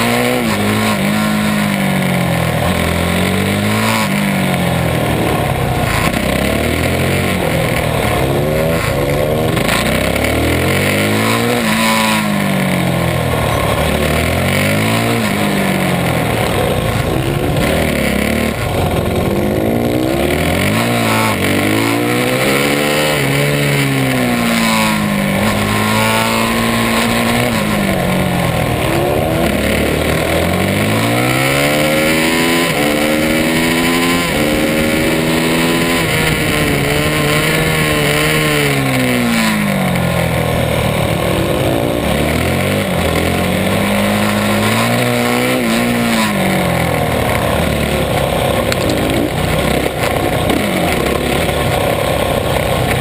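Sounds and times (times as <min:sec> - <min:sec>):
motorcycle engine revving: 0:00.0 - 0:53.0.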